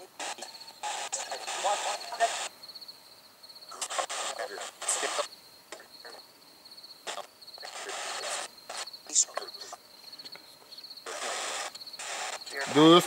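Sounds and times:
bursts of hiss: 0.0 - 2.6, 3.7 - 5.9, 7.0 - 9.7, 11.0 - 13.0
cricket chirping: 0.0 - 13.0.

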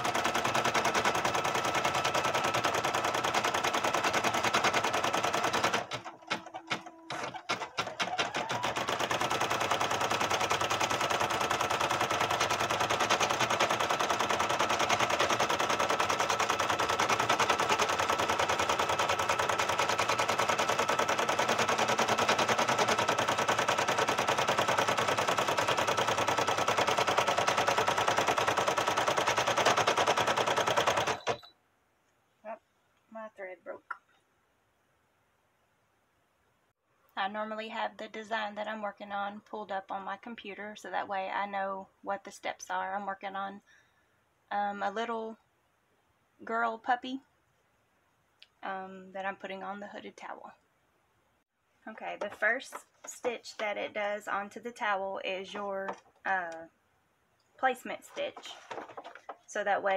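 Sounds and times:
embroidery machine stitching: 0.0 - 31.5.

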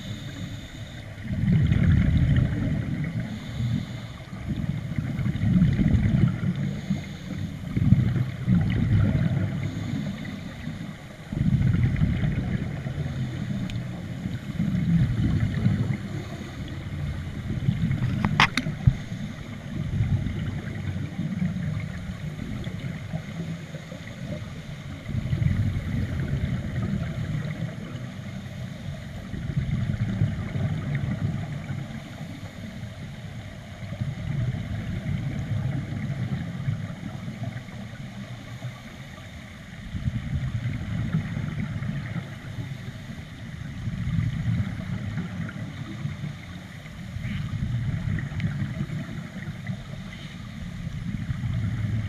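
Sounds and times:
underwater regulator breathing bubbles: 17.8 - 19.4.

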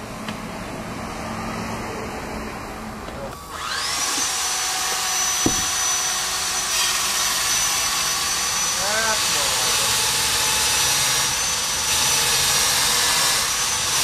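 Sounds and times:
power tool motor whining: 3.4 - 14.0
single knock: 5.4 - 5.8.

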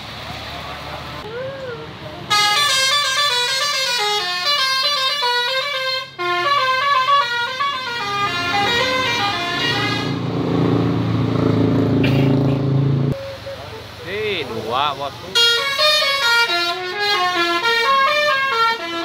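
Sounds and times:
bus engine running: 0.0 - 19.0
bus horn playing multi-note tune: 2.3 - 10.2, 15.3 - 19.0.

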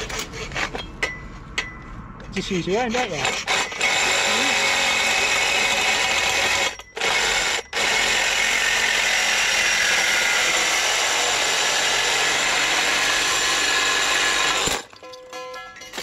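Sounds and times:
reciprocating saw cutting pipe: 2.9 - 14.9.

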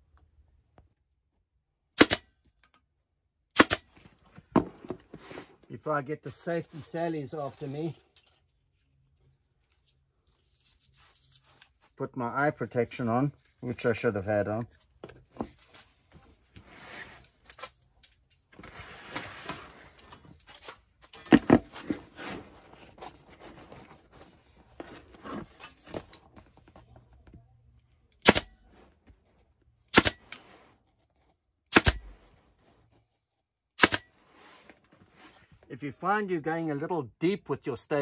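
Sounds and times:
staple gun firing: 2.0 - 2.2, 3.6 - 3.9, 28.2 - 28.5, 29.9 - 30.2, 31.7 - 32.1, 33.8 - 34.0
handling noise: 3.9 - 5.7, 18.5 - 27.5.

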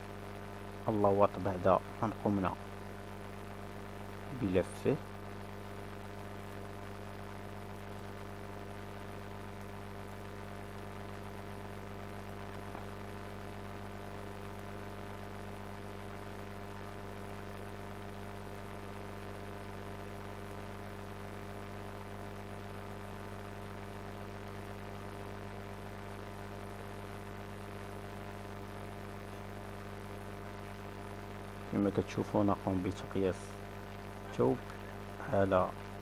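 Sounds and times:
electrical mains hum: 0.0 - 36.0.

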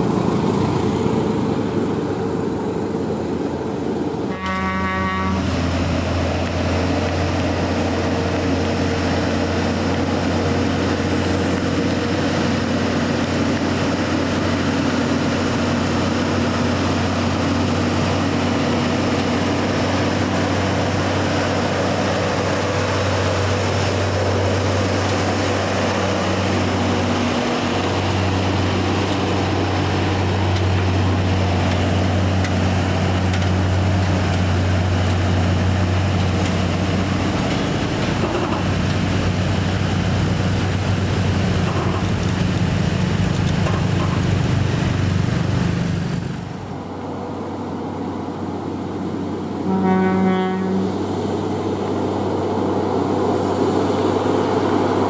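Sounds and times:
truck diesel engine drone: 0.0 - 55.0
truck horn: 4.3 - 5.6, 49.6 - 51.0.

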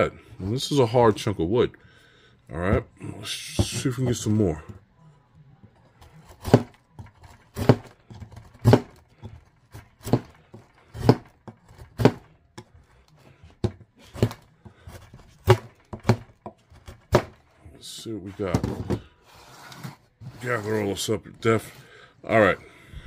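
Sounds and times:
knife shaving wood: 5.8 - 18.5, 19.2 - 22.6.

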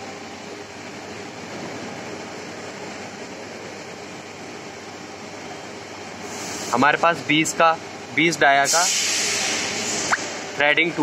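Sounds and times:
machinery and fans humming: 0.0 - 11.0.

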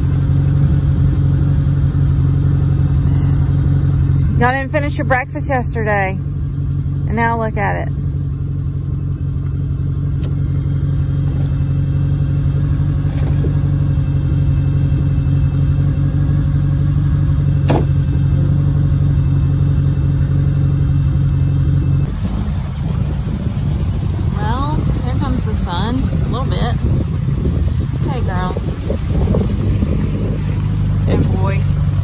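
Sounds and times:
vehicle engine idling: 0.0 - 32.0.

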